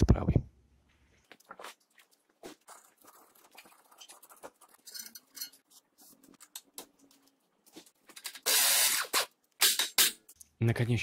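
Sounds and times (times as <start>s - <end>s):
hand wrench clicks and scrapes: 4.0s - 5.6s.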